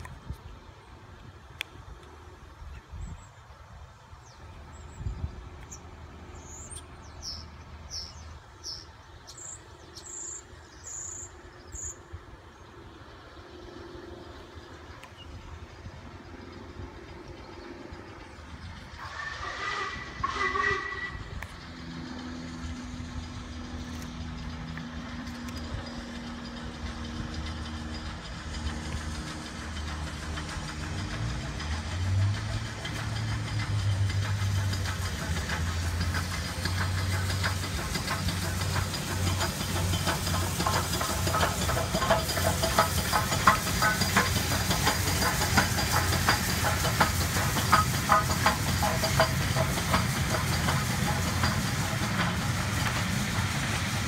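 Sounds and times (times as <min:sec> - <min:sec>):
steam locomotives approaching: 0:00.0 - 0:54.0
steam hissing: 0:05.5 - 0:54.0
clicks and knocks of wheels: 0:23.2 - 0:53.5.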